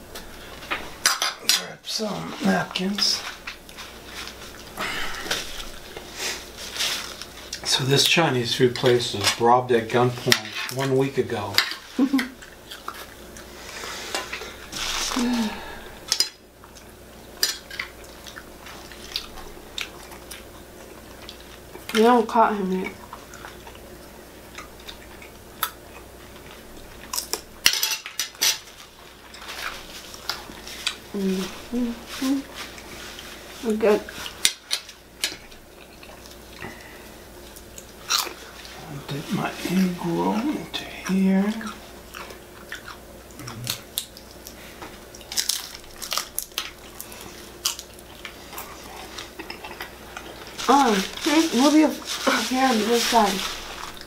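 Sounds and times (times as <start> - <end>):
chewing: 3.2 - 7.7, 11.6 - 15.2, 16.0 - 22.0, 22.7 - 27.5, 28.3 - 31.1, 32.1 - 38.8, 41.0 - 51.3.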